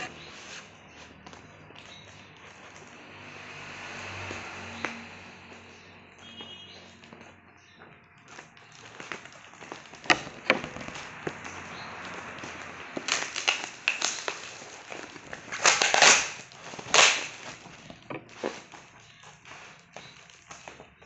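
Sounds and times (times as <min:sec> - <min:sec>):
plastic crinkling and rustling: 0:00.0 - 0:21.0
packing tape ripping: 0:08.7 - 0:20.7.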